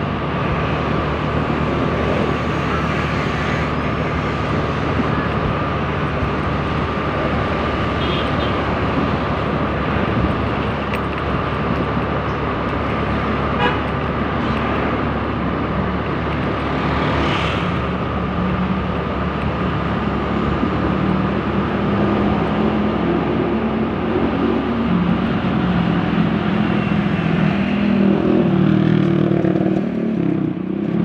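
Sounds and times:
scooter horn toot: 8.0 - 8.6.

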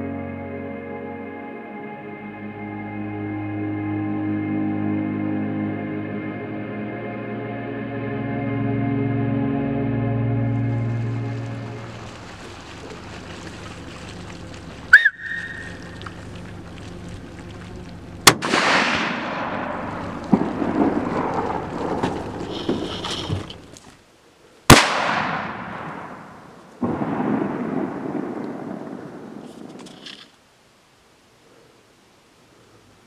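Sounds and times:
rifle shots: 18.2 - 21.7, 24.7 - 29.8
rolling echo: 18.2 - 23.0, 24.7 - 29.9.

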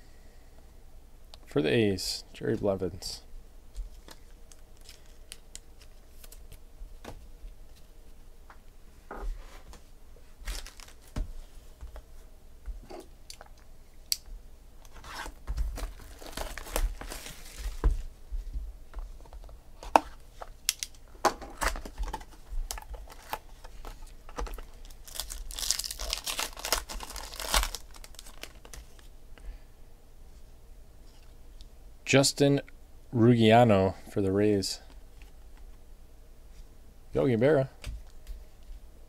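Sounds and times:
wrapping crinkling and tearing: 3.9 - 6.6, 10.4 - 11.2, 14.9 - 17.9, 21.6 - 29.1.

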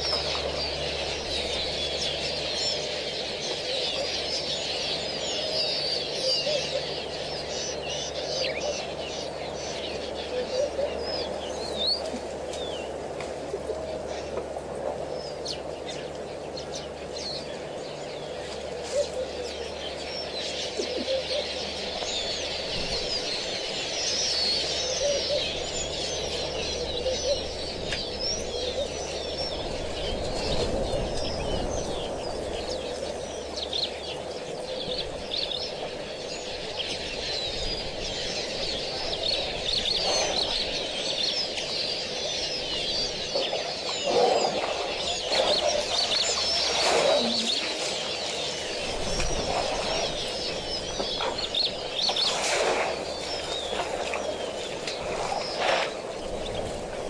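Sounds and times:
low bird calls: 0.0 - 57.0
small birds chirping: 0.0 - 57.0.

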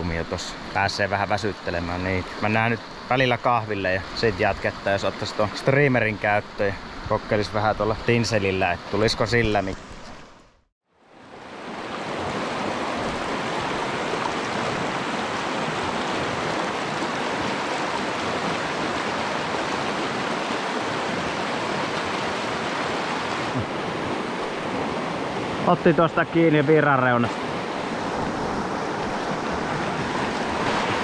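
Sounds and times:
water rushing in river rapid: 11.0 - 31.0.

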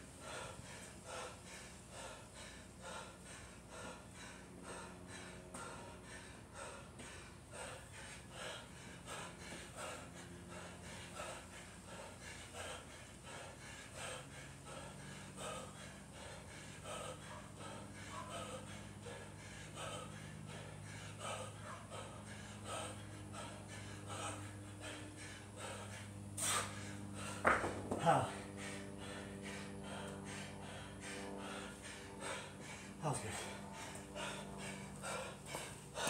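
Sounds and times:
man breathing heavily: 0.0 - 36.0.

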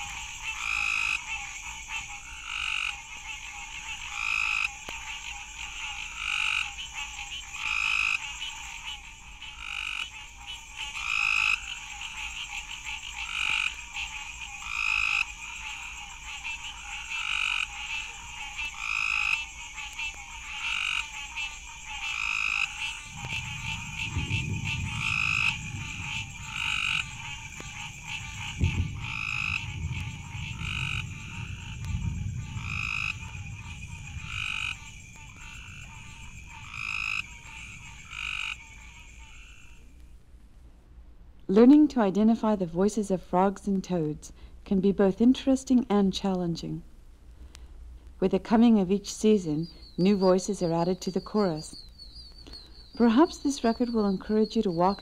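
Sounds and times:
tree frogs calling: 0.0 - 40.1, 48.2 - 55.0
thunder rumble: 21.6 - 40.3.

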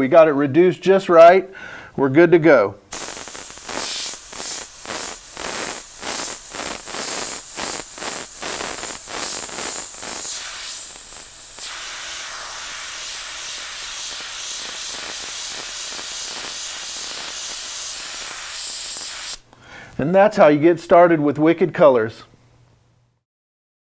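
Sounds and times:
airbrush spraying hiss: 2.9 - 19.4.

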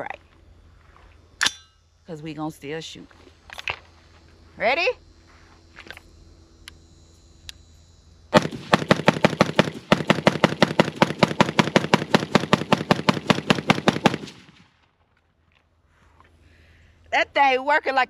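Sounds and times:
rapid rifle shots: 8.4 - 14.7.

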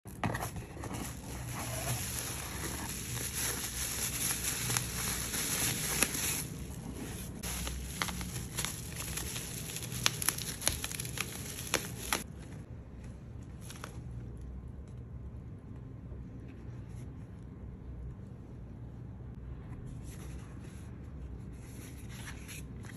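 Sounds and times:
bubble wrap crinkling and crackling: 0.1 - 12.7.

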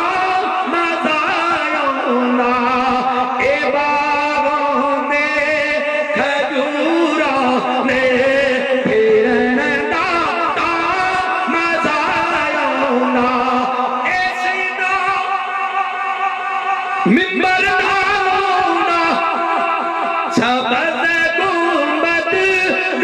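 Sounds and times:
man singing ornamented melody: 0.0 - 23.0.

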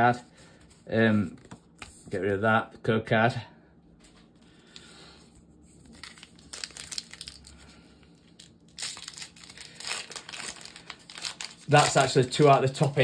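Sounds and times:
packaging crinkling: 5.7 - 13.0.

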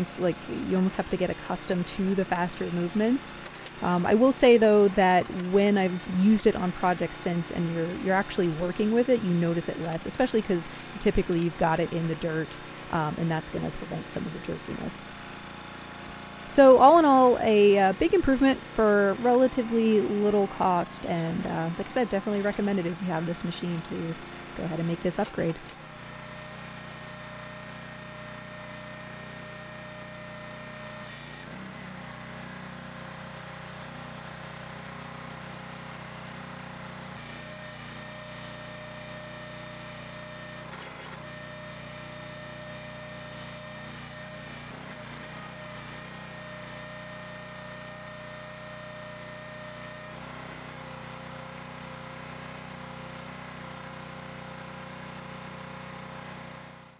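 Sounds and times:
small gas engine running: 0.0 - 56.9
faint hydraulic whine: 31.0 - 31.6.

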